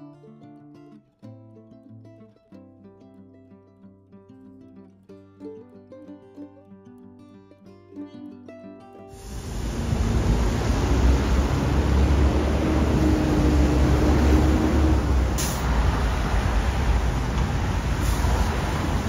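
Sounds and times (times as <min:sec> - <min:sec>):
short high hisses: 0:09.2 - 0:12.1, 0:15.0 - 0:16.8, 0:17.8 - 0:19.0
vehicle deep rumble: 0:09.2 - 0:19.0.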